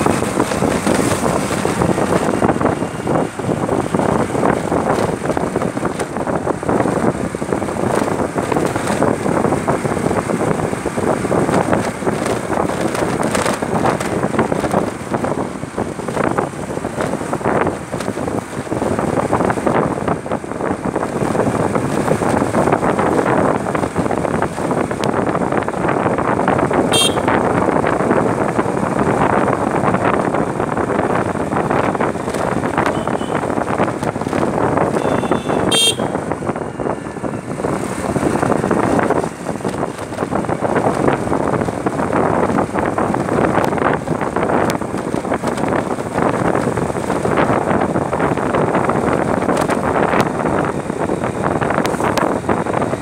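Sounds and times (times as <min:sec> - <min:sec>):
motorbike engine running: 0:00.0 - 0:53.0
wind buffeting microphone: 0:00.0 - 0:53.0
horn beeping: 0:26.9 - 0:27.4, 0:32.8 - 0:33.5, 0:34.9 - 0:37.2.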